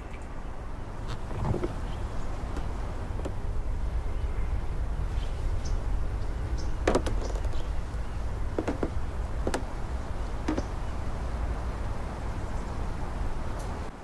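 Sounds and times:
low steady rumble: 0.0s - 14.0s
short knocks: 6.8s - 7.8s, 8.5s - 9.8s, 10.4s - 10.8s.

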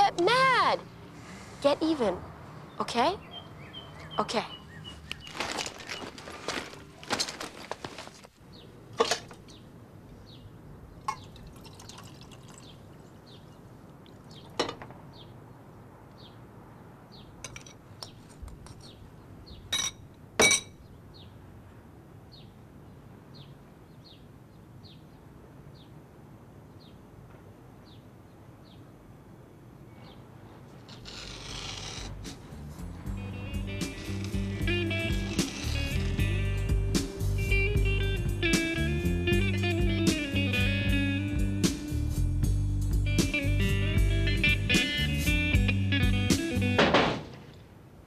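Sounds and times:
faint water dripping: 11.0s - 14.6s.

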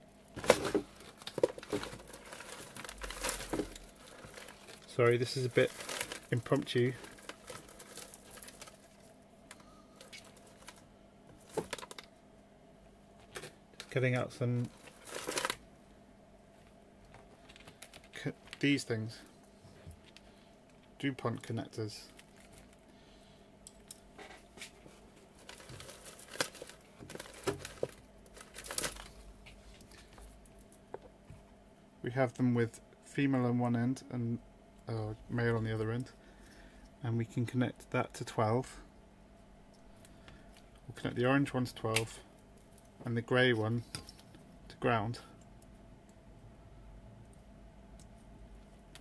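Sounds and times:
faint steady hum: 0.0s - 49.0s
rustling of small parts: 0.2s - 12.1s, 13.2s - 15.6s, 16.5s - 22.9s, 23.6s - 31.1s.

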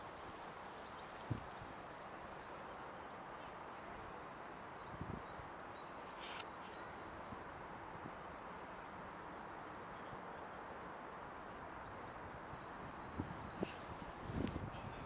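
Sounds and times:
background hiss: 0.0s - 15.0s
small birds chirping: 4.8s - 15.0s
brief rustle: 6.1s - 6.8s.

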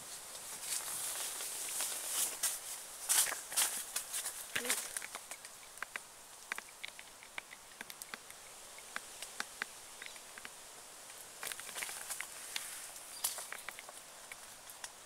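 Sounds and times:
leaves and twigs crackling: 0.0s - 15.0s.

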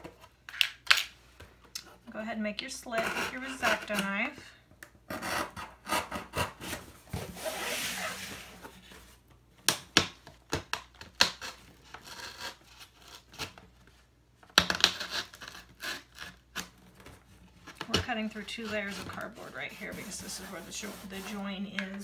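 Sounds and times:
knife cutting cardboard: 11.0s - 13.6s, 14.6s - 22.0s.

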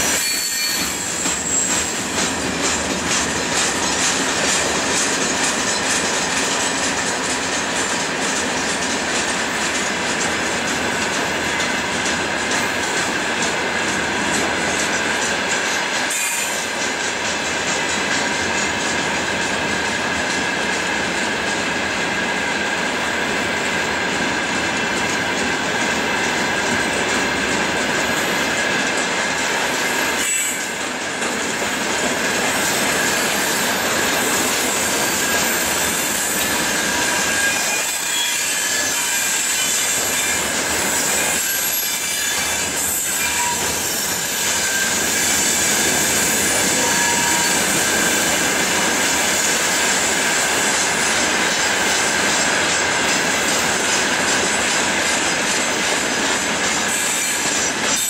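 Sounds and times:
train wheels clattering: 0.0s - 58.0s
high-pitched wheel squeal: 0.1s - 2.0s, 34.8s - 48.5s.

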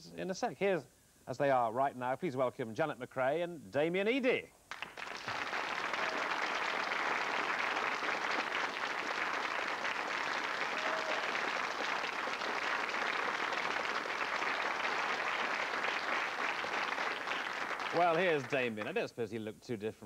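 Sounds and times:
audience applauding: 4.7s - 19.0s.

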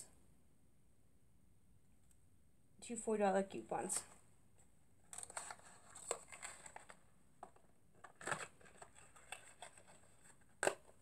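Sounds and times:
sharp paper crackle: 5.1s - 7.0s
paper and packaging rustling: 5.1s - 11.0s.

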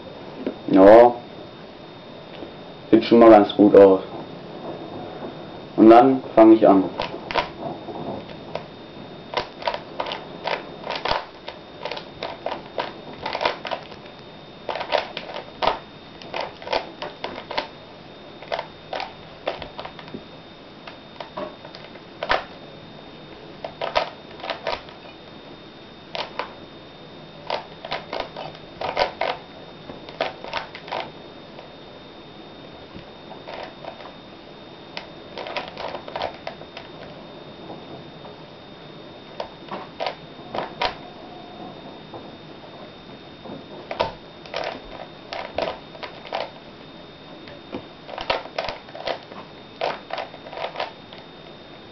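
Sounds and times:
faint steady high tone: 0.0s - 51.9s
puzzle cube plastic clicks: 7.0s - 7.6s, 9.3s - 14.1s, 14.7s - 17.7s, 23.6s - 25.0s, 26.2s - 26.6s, 27.4s - 29.4s, 35.0s - 36.9s, 48.1s - 51.2s.

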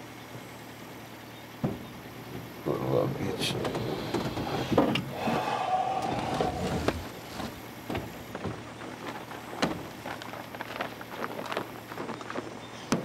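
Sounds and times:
pickup truck engine running: 0.0s - 13.0s.

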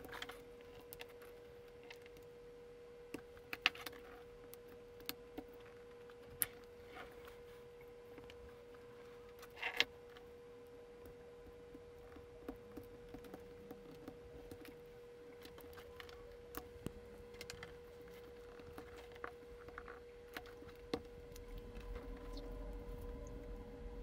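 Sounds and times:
faint hum: 0.0s - 24.0s.

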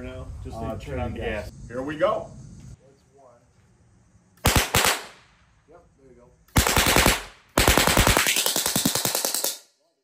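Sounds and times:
machine gun firing bursts: 4.4s - 5.2s, 6.5s - 9.6s.

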